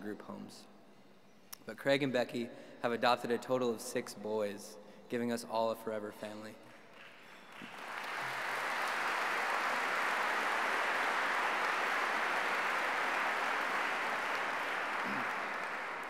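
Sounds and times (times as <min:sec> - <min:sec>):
audience applauding: 0:06.9 - 0:16.0.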